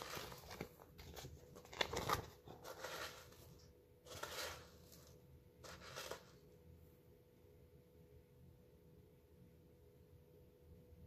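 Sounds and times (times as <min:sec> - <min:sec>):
paper book rustling: 0:00.0 - 0:06.5.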